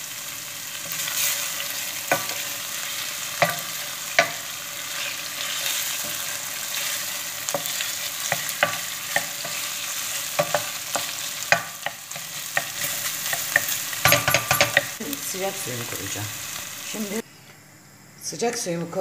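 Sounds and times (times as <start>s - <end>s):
food sizzling in a pot: 0.0s - 17.2s
wooden spoon scraping a pan: 0.8s - 15.0s.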